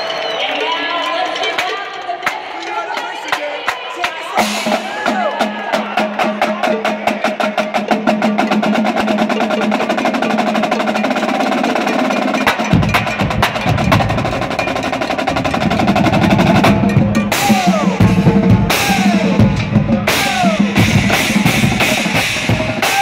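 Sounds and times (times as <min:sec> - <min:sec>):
snare drums playing fast: 0:04.0 - 0:23.0
bass drums: 0:12.4 - 0:23.0.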